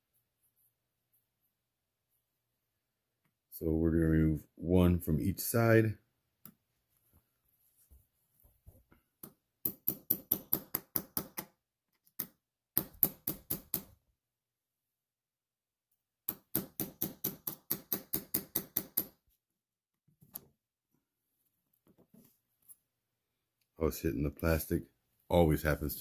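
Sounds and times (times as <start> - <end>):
small hammer tapping metal punch: 9.2 - 11.5, 16.3 - 19.2.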